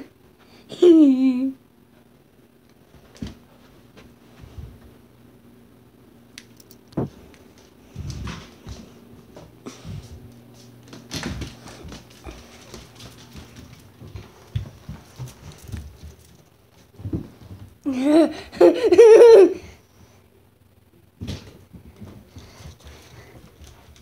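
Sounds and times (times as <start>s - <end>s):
dog paws tapping on floor: 2.8s - 5.0s, 6.4s - 17.8s, 21.2s - 24.0s.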